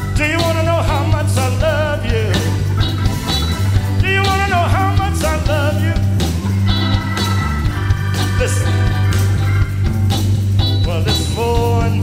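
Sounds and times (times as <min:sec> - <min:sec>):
man singing with vibrato: 0:00.0 - 0:06.4, 0:07.9 - 0:09.5, 0:10.7 - 0:12.0
soul band playing: 0:00.0 - 0:12.0.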